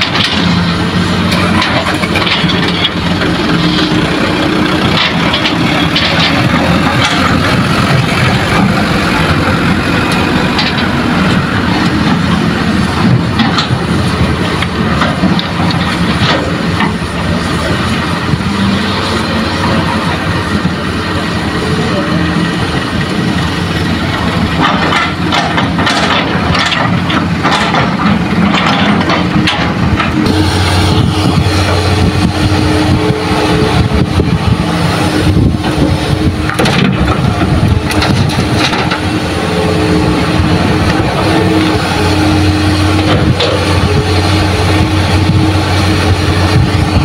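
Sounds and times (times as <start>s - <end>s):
knocks and clatter: 0.0s - 18.5s, 24.1s - 34.6s, 35.2s - 39.3s, 42.7s - 45.5s
dump truck engines idling: 0.0s - 47.0s
excavator diesel engine under load: 0.0s - 47.0s.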